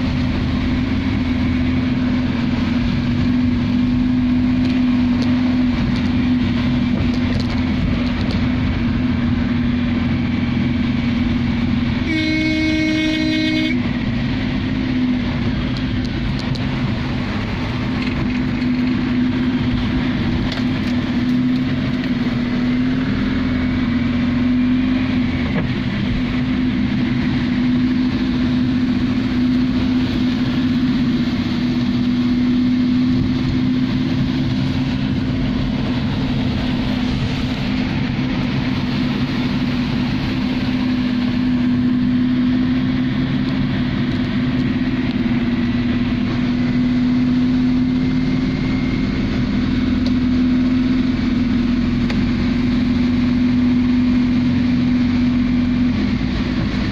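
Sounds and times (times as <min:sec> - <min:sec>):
heavy rain on a car: 0:00.0 - 0:56.9
low car drone: 0:00.0 - 0:56.9
vehicle horn: 0:12.0 - 0:14.0.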